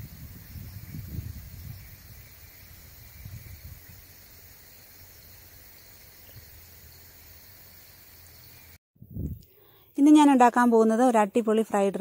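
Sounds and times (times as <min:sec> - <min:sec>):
high insect drone: 0:00.0 - 0:08.8.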